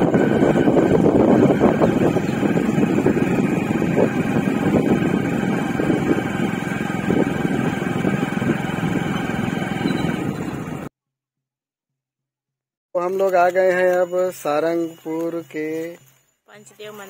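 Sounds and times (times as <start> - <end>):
motorcycle engine rumble: 0.0 - 10.9
road and wind noise: 0.0 - 10.9.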